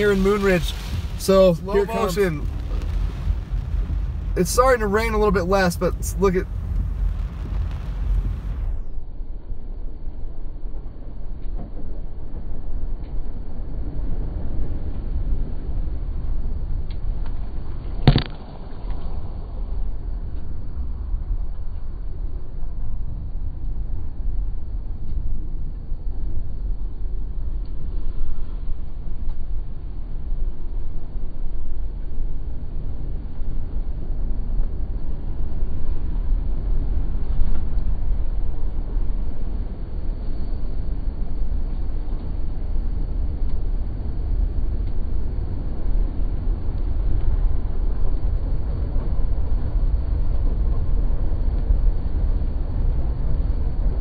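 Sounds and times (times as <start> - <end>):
car driving through floodwater: 0.0 - 6.6
water splash against car: 0.1 - 1.5.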